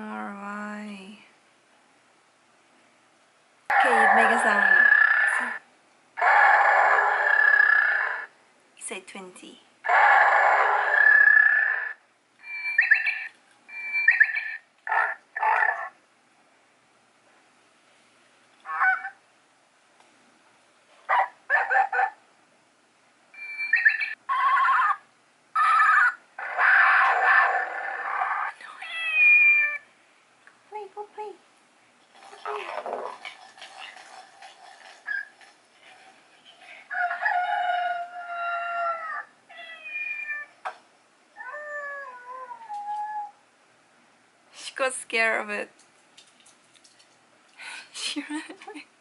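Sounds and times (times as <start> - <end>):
toy playing recorded animal calls: 3.8 - 5.6, 6.6 - 8.3, 9.9 - 15.9, 23.4 - 29.8
toy playing animal calls: 11.1 - 14.6, 25.6 - 27.1.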